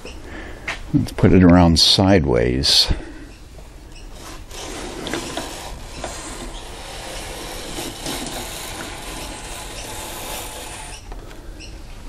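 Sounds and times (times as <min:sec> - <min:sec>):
wooden board scraping: 0:04.0 - 0:11.4.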